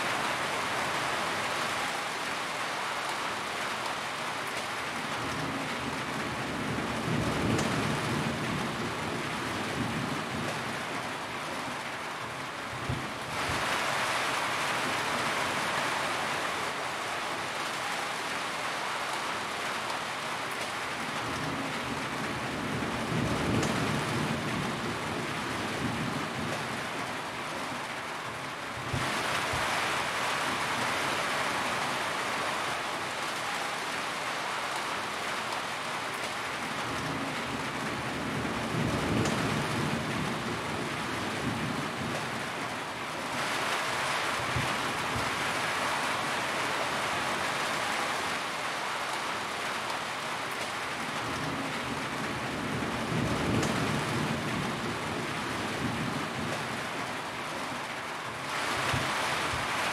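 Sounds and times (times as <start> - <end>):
rain on a metal roof: 0.0 - 59.9.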